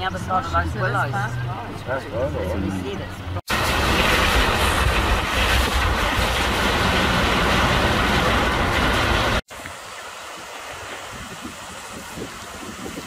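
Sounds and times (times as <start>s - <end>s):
rushing rain and floodwater: 3.5s - 13.0s
wind buffeting microphone: 10.7s - 13.0s.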